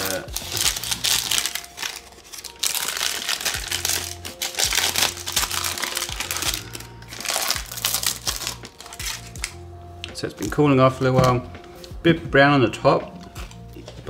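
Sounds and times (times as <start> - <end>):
baking paper crinkling: 0.0 - 9.6
background music with low beat: 0.0 - 14.0.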